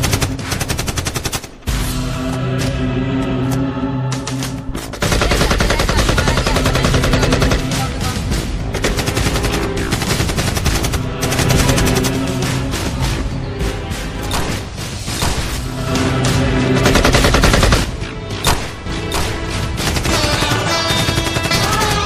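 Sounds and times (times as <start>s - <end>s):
background music: 0.0s - 22.0s
machine-gun fire: 5.0s - 8.0s, 8.7s - 12.4s, 16.8s - 22.0s.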